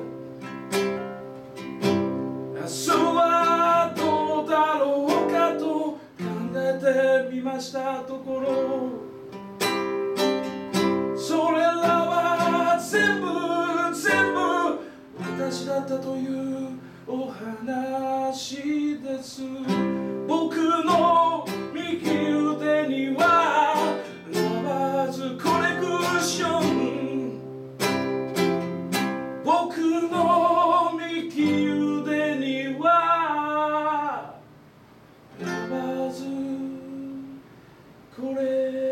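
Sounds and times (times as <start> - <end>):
acoustic guitar strumming: 0.0 - 38.9
man singing: 2.5 - 9.2, 11.1 - 27.5, 29.4 - 34.4, 35.4 - 37.4, 38.1 - 38.9.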